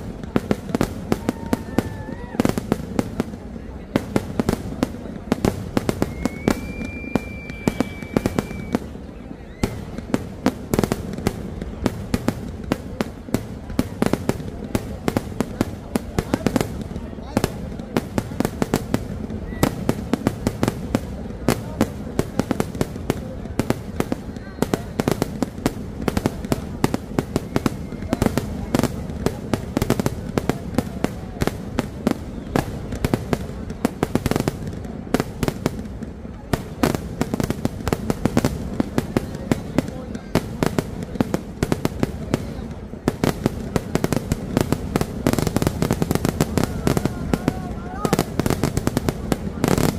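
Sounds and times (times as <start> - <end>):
fireworks bursting with sharp bangs: 0.0 - 49.9
high whistle: 6.0 - 8.9.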